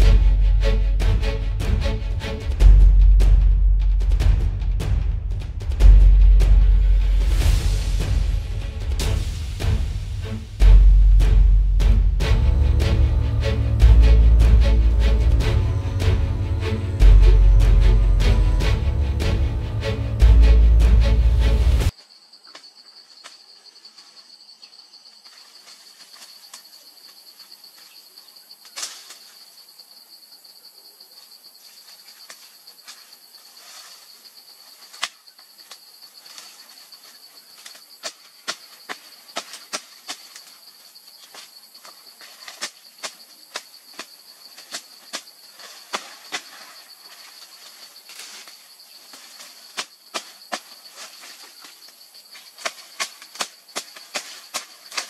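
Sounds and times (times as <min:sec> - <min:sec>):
insects chirring: 0:07.0 - 0:55.0
twigs cracking and snapping: 0:28.6 - 0:29.3, 0:34.8 - 0:55.0.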